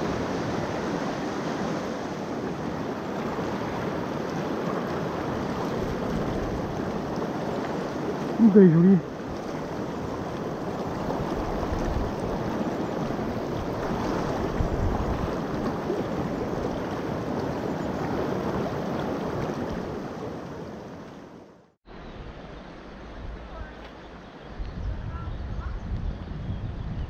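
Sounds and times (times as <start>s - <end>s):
water rushing over stones: 0.0s - 20.6s.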